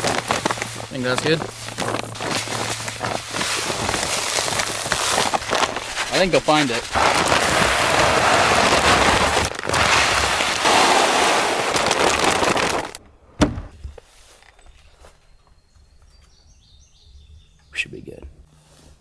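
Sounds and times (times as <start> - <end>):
pellets pouring into a feeder: 0.0 - 13.0.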